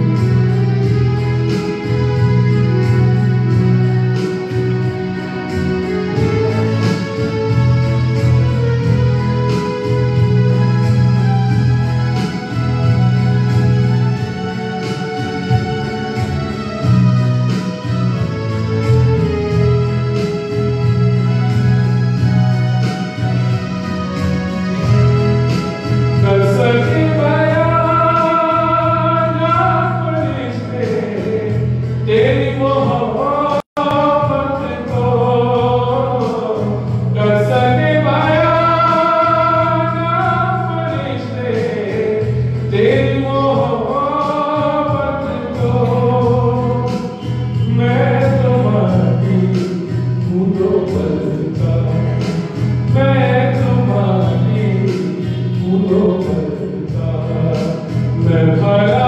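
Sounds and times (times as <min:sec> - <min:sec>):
electronic keyboard: 0:00.0 - 0:59.0
man singing: 0:24.8 - 0:59.0.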